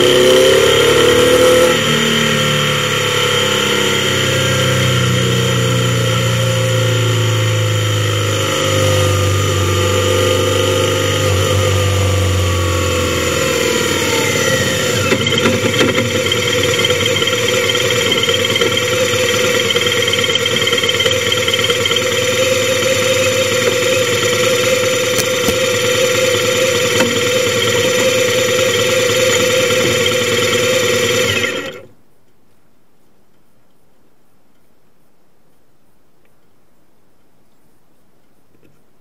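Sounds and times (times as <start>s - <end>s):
motorcycle engine idling: 12.4s - 31.7s.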